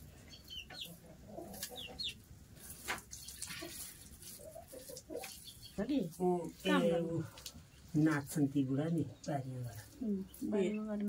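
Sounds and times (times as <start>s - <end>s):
chickens clucking: 0.2s - 7.9s.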